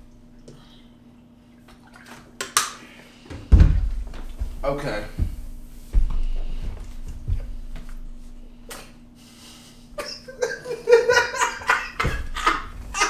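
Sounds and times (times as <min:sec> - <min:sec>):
person laughing: 0:10.0 - 0:13.0.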